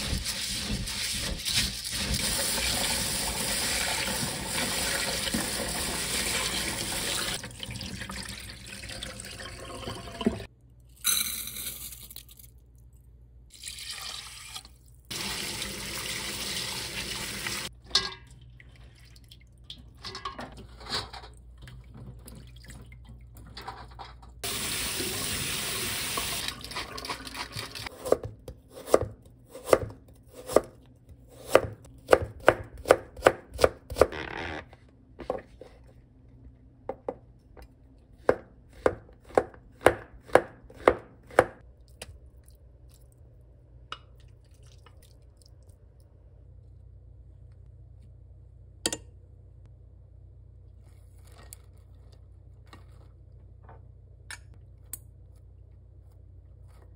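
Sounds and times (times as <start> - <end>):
knife chopping on plastic board: 38.2 - 41.6.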